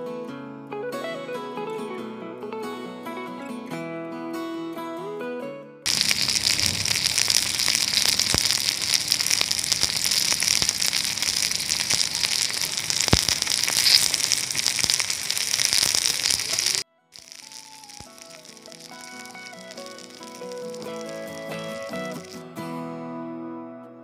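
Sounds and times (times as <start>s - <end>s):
tomato frying in a pan: 5.9s - 22.4s.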